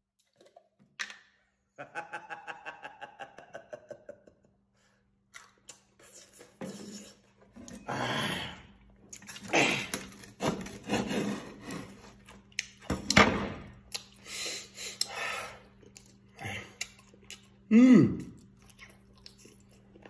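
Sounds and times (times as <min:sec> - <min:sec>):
chewing: 0:15.0 - 0:20.0.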